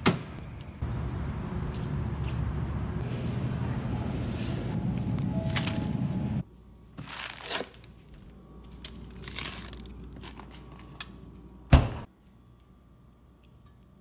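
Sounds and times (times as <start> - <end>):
plastic packaging rustling: 7.0 - 11.0.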